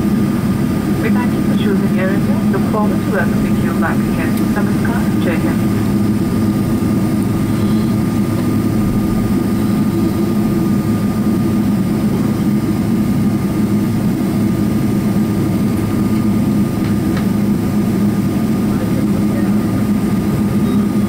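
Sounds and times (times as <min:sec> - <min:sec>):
airliner cabin rumble: 0:00.0 - 0:21.0
faint high whine: 0:01.0 - 0:10.9, 0:20.6 - 0:21.0.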